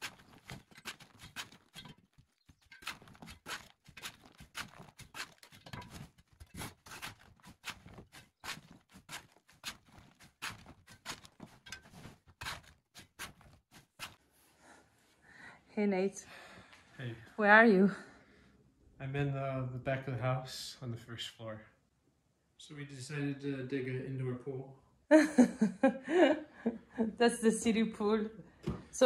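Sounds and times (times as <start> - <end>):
chisel tapping and scraping mortar: 0.0 - 14.2
mortar bits falling: 0.0 - 14.2.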